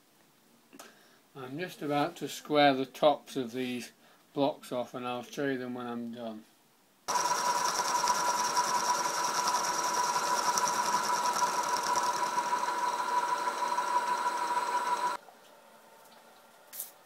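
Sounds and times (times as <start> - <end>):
milling machine cutting metal: 7.1 - 15.2.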